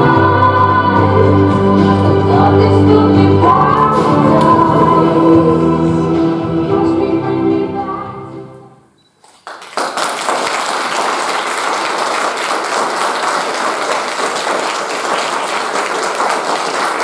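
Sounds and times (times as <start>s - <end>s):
choral singing: 0.0s - 8.8s
audience applauding: 9.2s - 17.0s.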